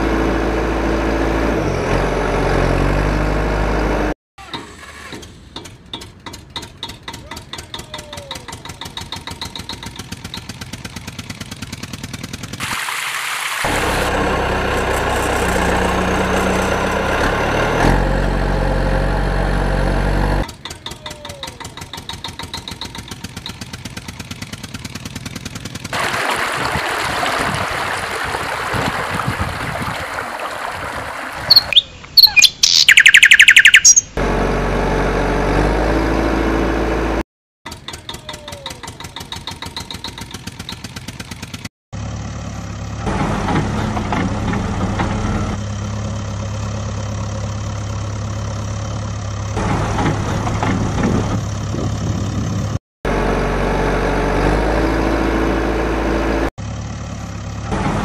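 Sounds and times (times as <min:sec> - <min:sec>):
engine idling: 0:04.8 - 0:12.6, 0:19.4 - 0:26.0
running water: 0:12.6 - 0:14.5, 0:26.0 - 0:31.8
birds chirping: 0:31.4 - 0:34.2.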